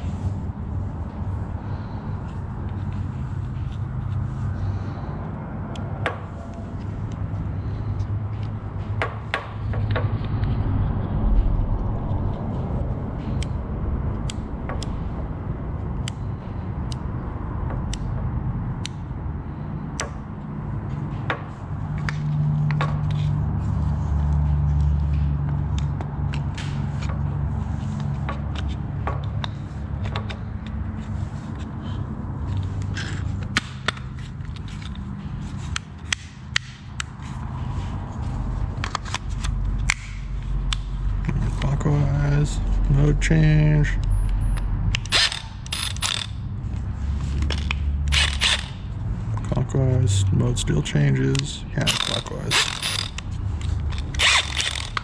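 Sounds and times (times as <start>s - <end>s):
steady low rumble: 0.0s - 26.6s, 36.6s - 55.0s
plastic parts clicking and scraping: 25.1s - 41.9s, 44.9s - 49.5s, 51.2s - 55.0s.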